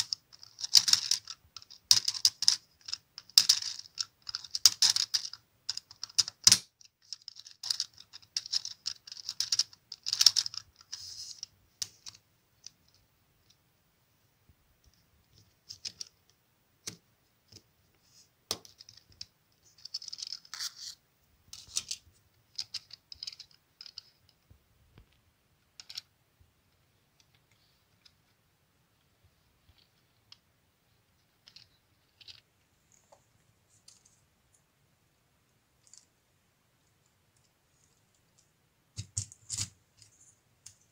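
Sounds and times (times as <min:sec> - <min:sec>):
plastic gears clicking and rattling: 0:00.0 - 0:13.0, 0:18.5 - 0:20.7, 0:21.5 - 0:24.2.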